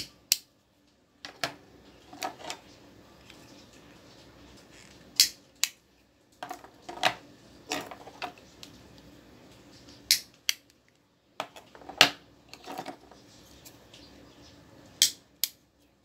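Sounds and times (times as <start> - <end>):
lighters clicking: 5.2 - 5.8, 10.1 - 10.7.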